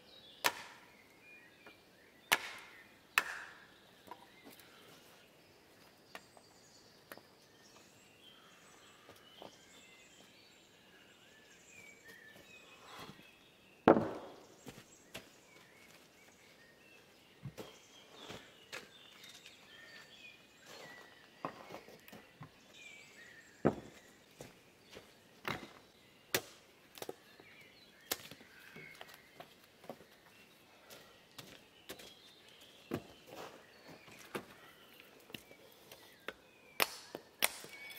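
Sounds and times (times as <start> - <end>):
birds calling faintly: 0.0 - 37.9
wooden boards knocking: 13.9 - 14.4
boot footsteps on soil: 17.4 - 22.4, 23.6 - 25.9, 28.3 - 34.4.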